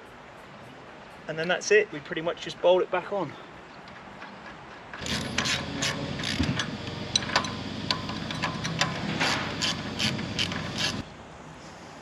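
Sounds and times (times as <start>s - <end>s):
ratchet spanner clicking: 5.0s - 11.0s
steady low hum: 5.0s - 11.2s.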